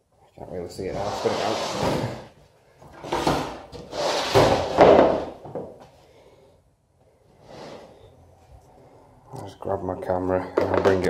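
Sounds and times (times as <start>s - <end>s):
board scraping across a bench: 0.9s - 2.3s, 2.9s - 5.4s, 7.4s - 8.0s.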